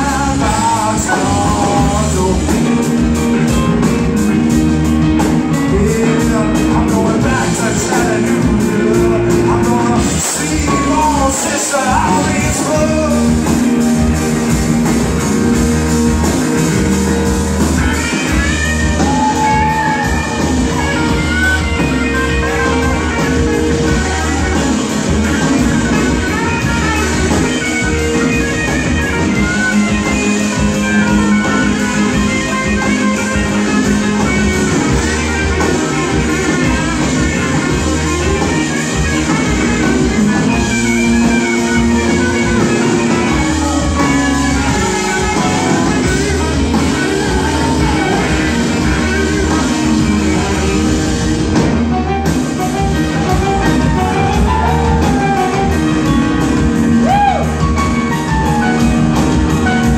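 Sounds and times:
bass guitar: 0.0 - 59.9
drums: 0.0 - 59.9
keyboards: 0.0 - 59.9
lead guitar with bending notes: 0.0 - 59.9
rock band playing: 0.0 - 59.9.

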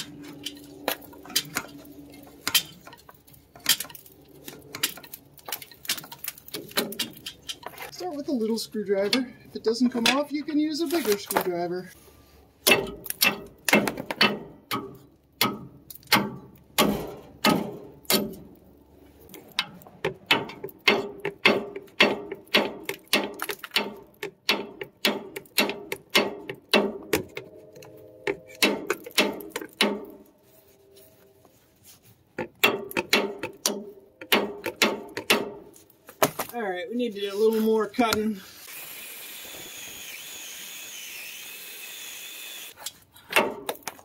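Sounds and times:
hammer striking metal: 12.6 - 18.5, 20.3 - 30.3, 32.6 - 35.7.

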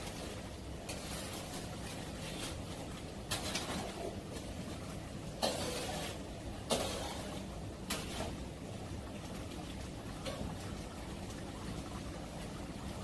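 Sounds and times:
metal spatula scraping a wok: 0.9 - 2.7, 5.4 - 8.4.

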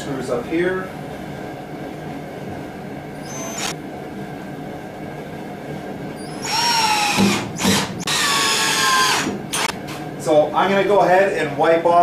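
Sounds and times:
low background hum: 0.0 - 12.0
power drill whirring: 3.2 - 3.8, 6.2 - 9.7.

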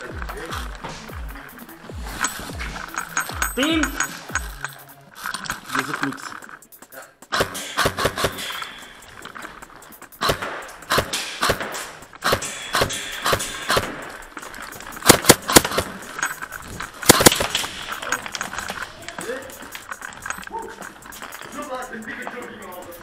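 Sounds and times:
airsoft guns firing: 7.3 - 18.8.

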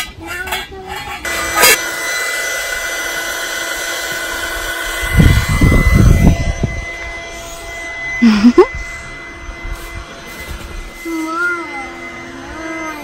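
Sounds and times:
engine-like drone: 0.0 - 13.0
low rumbling: 4.1 - 12.9.

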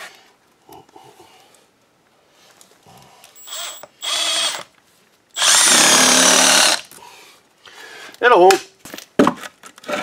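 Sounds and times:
cordless drill motor whining: 3.4 - 4.7, 5.4 - 6.8.

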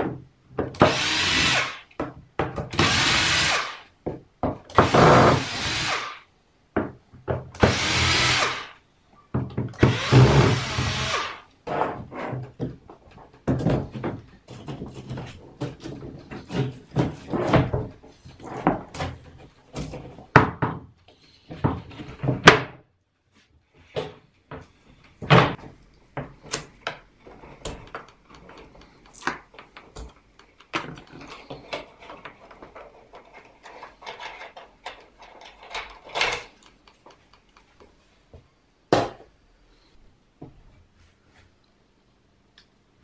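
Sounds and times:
wooden frame knocks and bumps: 9.3 - 9.8, 11.7 - 22.8.

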